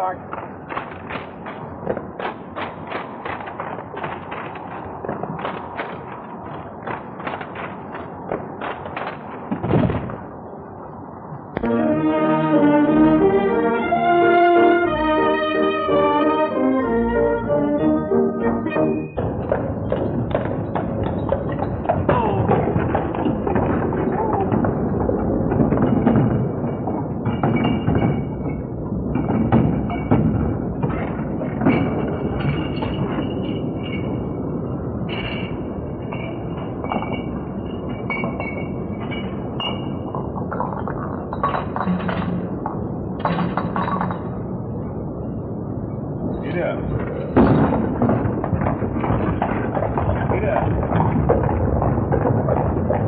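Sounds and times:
film soundtrack hiss and crackle: 0:00.0 - 0:53.0
rifles clattering: 0:00.2 - 0:10.1
glass bottles clinking: 0:25.6 - 0:30.4, 0:31.0 - 0:34.3, 0:35.1 - 0:44.4.

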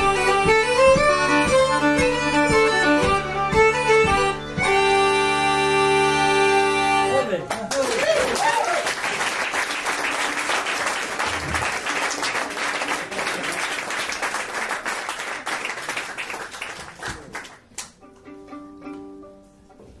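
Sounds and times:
faint held instrument notes: 0:00.0 - 0:07.4, 0:18.0 - 0:20.0
audience applauding: 0:07.4 - 0:17.7.

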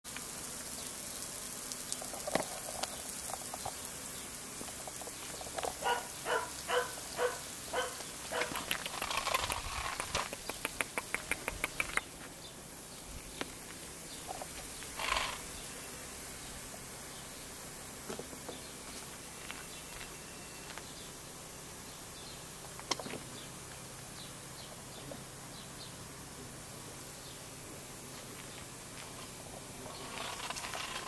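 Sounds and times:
puppies yapping: 0:05.7 - 0:08.7
sharp clicks: 0:08.4 - 0:12.1.

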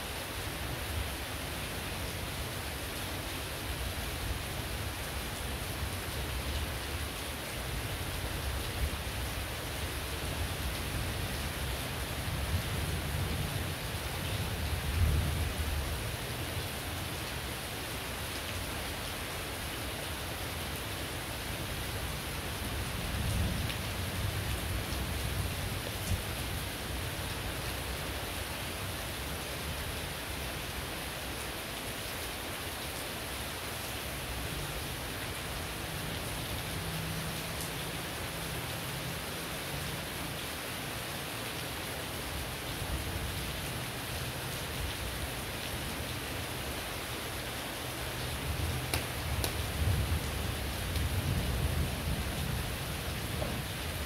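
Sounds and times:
heavy rain pouring: 0:00.0 - 0:54.0
distant thunder rumbling: 0:51.0 - 0:53.8.

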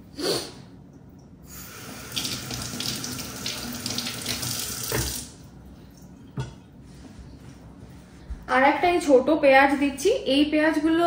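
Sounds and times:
faucet running into a steel sink: 0:01.5 - 0:05.4.

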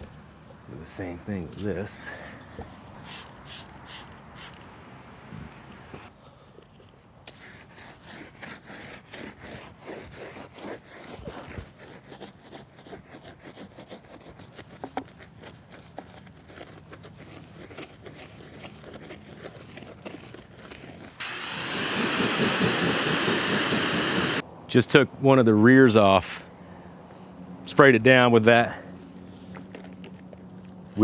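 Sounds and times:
hose spray hissing: 0:03.0 - 0:04.6, 0:21.2 - 0:24.4
scrubbing tire with soapy water: 0:21.2 - 0:24.4.

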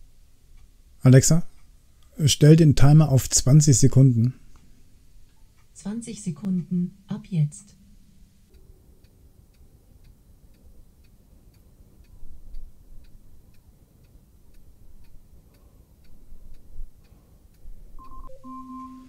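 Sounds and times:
clock ticking faintly: 0:00.1 - 0:19.0
timer alarm tone: 0:18.0 - 0:19.0.

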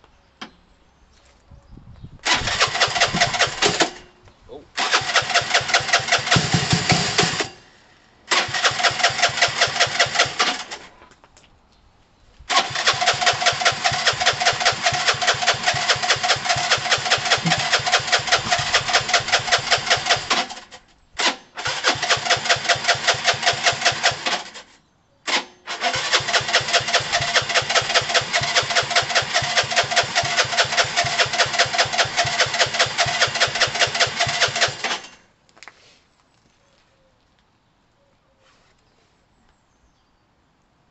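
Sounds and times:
starter cranking engine: 0:02.2 - 0:04.0, 0:04.8 - 0:07.7, 0:08.3 - 0:10.9, 0:12.5 - 0:24.7, 0:25.3 - 0:35.2.

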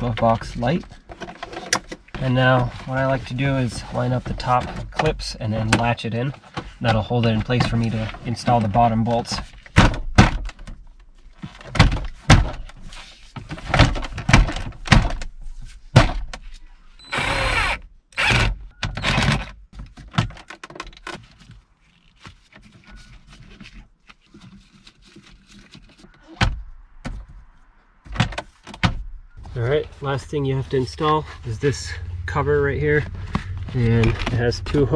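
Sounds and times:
plastic panel knocks and snaps: 0:09.7 - 0:10.8, 0:11.4 - 0:12.8, 0:13.4 - 0:15.3, 0:15.9 - 0:16.4
plastic scrape: 0:21.0 - 0:26.4, 0:29.4 - 0:34.9.

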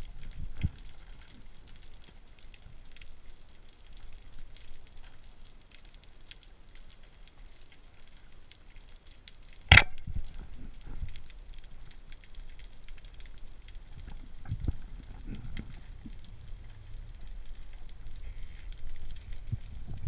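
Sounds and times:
underwater clicks crackling: 0:00.0 - 0:20.0
speargun firing snap: 0:09.7 - 0:10.0.

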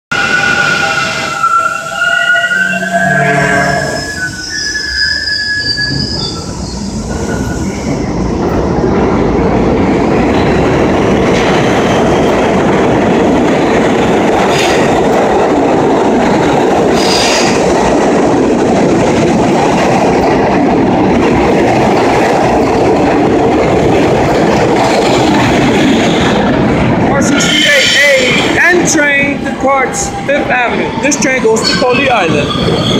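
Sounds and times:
high wheel squeals: 0:00.1 - 0:07.8
subway train running past: 0:00.1 - 0:32.9.

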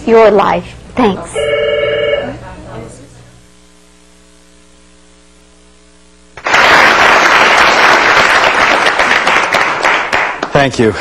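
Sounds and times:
faint electrical hum: 0:00.0 - 0:11.0
audience applause: 0:06.4 - 0:11.0.

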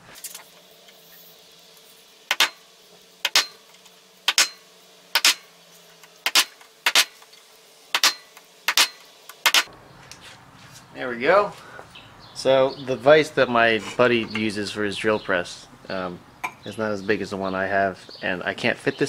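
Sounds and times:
center punch striking metal: 0:02.3 - 0:02.6, 0:03.2 - 0:05.5, 0:07.9 - 0:09.7.

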